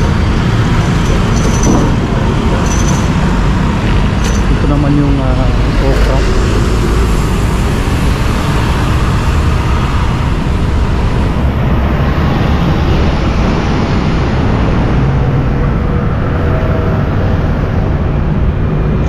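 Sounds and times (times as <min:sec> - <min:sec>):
cars and buses passing: 0:00.0 - 0:19.0
motorcycle riding: 0:00.0 - 0:19.0.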